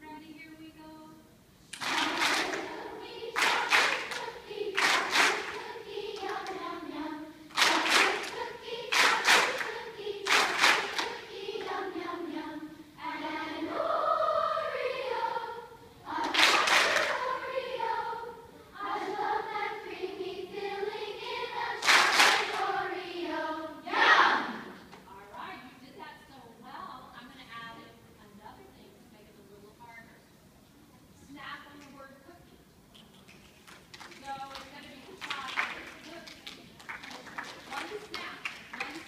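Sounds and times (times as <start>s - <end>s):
children's choir singing: 1.8s - 25.2s.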